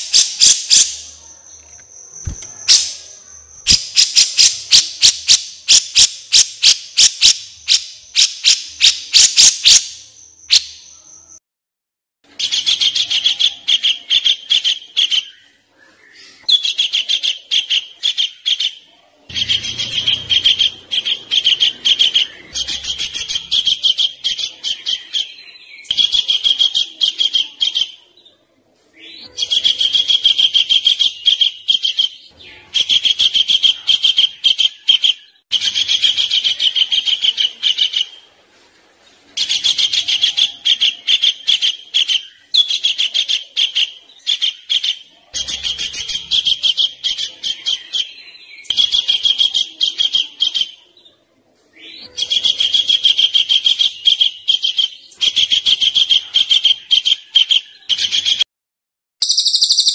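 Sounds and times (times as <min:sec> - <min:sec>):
songbird trilling: 0:00.0 - 0:11.4, 0:59.2 - 0:59.9.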